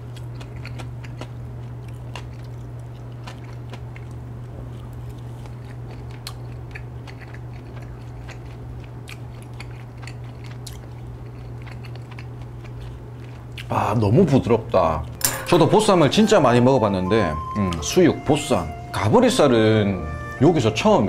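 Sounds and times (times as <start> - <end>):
close chewing of soft meat: 0.0 - 15.2.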